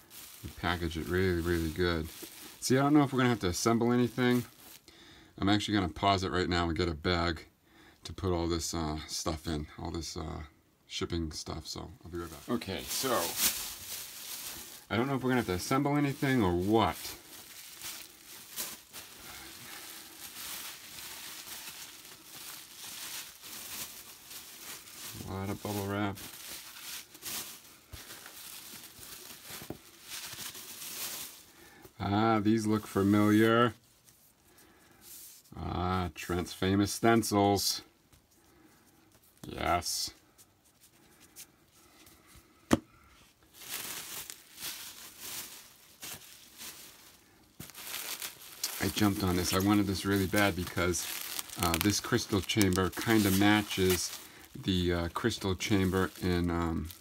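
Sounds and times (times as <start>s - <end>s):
sharp packing crackles: 0.0s - 4.9s, 12.2s - 31.9s, 43.5s - 57.0s
bubble wrap and paper crinkling: 0.0s - 6.7s, 11.5s - 42.4s, 43.2s - 57.0s.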